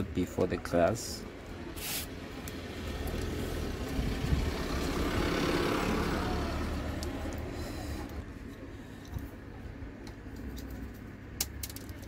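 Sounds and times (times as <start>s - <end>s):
vehicle engine passing by: 2.1s - 8.4s.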